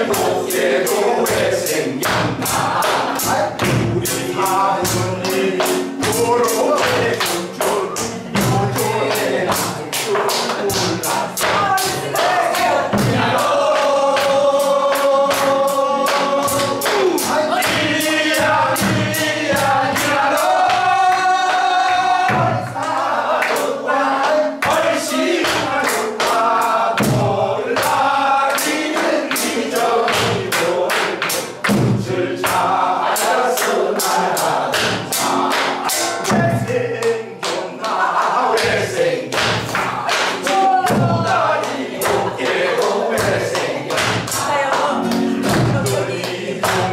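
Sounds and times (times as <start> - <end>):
drum strokes: 0.0 - 23.7, 24.6 - 36.9, 38.5 - 46.9
group of voices singing: 0.0 - 46.9
hand claps: 0.1 - 46.9
classical guitar: 44.4 - 46.9.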